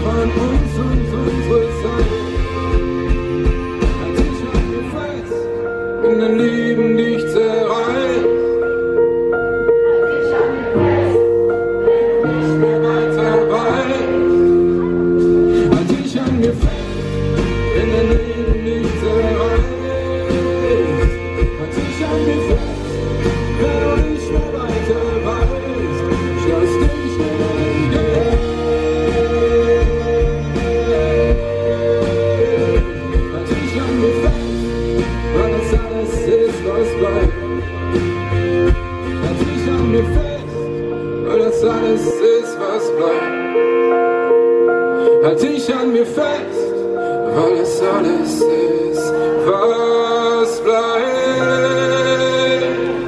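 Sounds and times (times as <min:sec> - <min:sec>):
drums with steady beat: 0:00.0 - 0:05.2, 0:15.2 - 0:40.6
live pop-rock band: 0:00.0 - 0:53.0
acoustic guitar strumming: 0:10.1 - 0:45.9.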